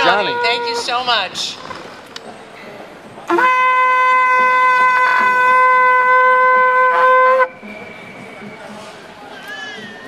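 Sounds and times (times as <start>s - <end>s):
shofar blast: 3.3s - 7.6s.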